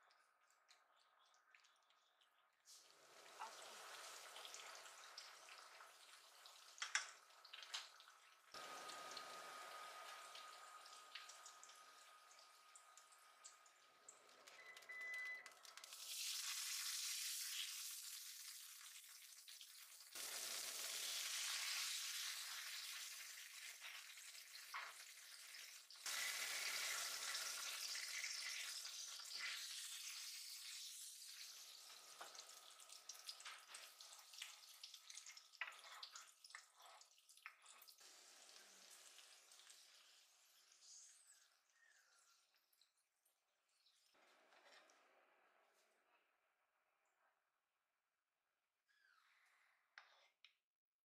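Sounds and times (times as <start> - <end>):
hot oil sizzling: 2.7 - 14.4, 15.4 - 36.8, 37.5 - 41.1.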